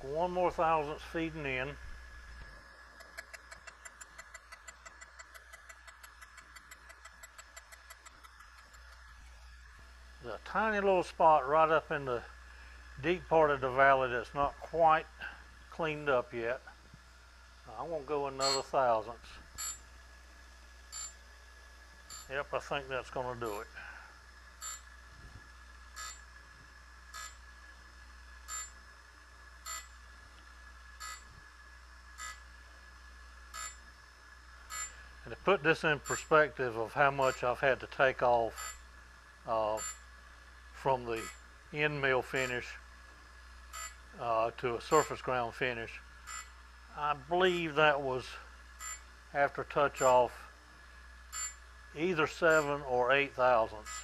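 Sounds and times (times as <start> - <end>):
grinding machine hum: 0.0 - 54.0
light ticking: 3.0 - 9.0
short beeps: 18.4 - 18.6.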